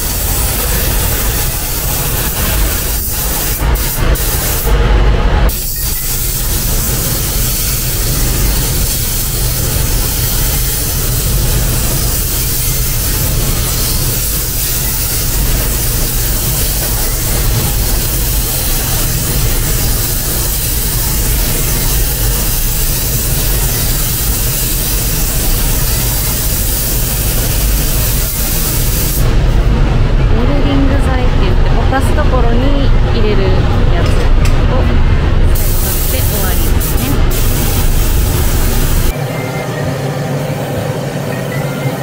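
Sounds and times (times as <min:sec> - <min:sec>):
spray gun hissing: 0:00.0 - 0:04.7, 0:05.5 - 0:29.3, 0:35.6 - 0:39.2
ventilation rumble: 0:00.0 - 0:42.0.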